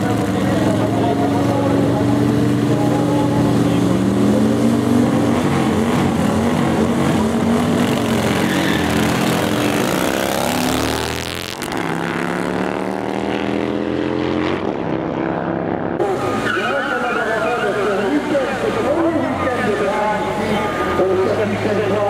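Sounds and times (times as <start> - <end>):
motorcycle engines revving: 0.0 - 22.0.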